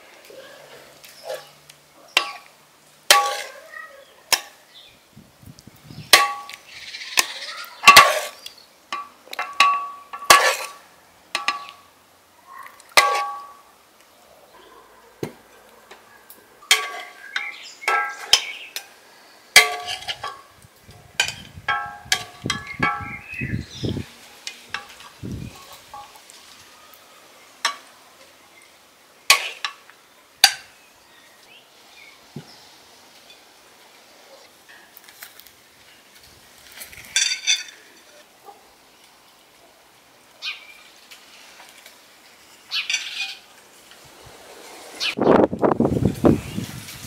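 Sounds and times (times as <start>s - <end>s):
metal ladle clinking on dishes: 16.7s - 18.6s, 19.6s - 20.4s.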